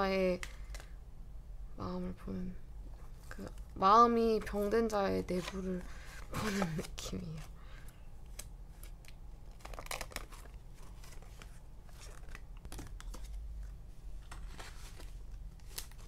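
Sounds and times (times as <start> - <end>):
paper rustling and crinkling: 3.1 - 7.5, 8.3 - 16.0.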